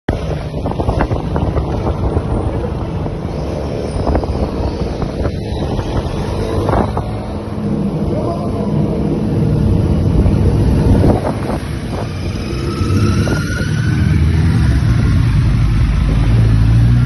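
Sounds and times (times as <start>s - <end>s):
wind buffeting the microphone: 0.1s - 7.6s, 9.7s - 13.8s
motorcycle engines running: 0.1s - 17.0s.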